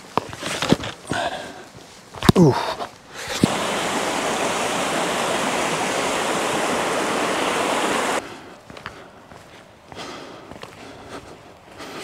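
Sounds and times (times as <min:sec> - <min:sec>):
footsteps on stony track: 0:00.0 - 0:03.1, 0:08.2 - 0:12.0
stream rushing over rocks: 0:03.2 - 0:08.2.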